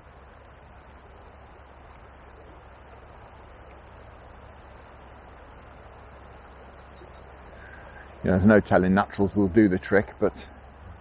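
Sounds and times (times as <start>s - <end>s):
river water flowing over gravel: 0.0s - 11.0s.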